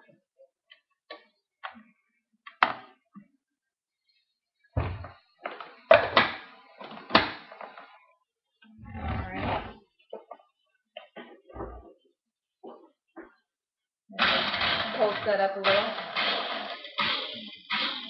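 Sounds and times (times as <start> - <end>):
knocks and thuds: 4.8 - 5.2
kitchen utensils clattering: 14.2 - 18.0.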